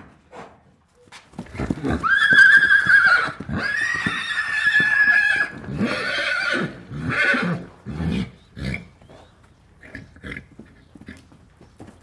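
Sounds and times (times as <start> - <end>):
horse whinnying: 1.5 - 8.9.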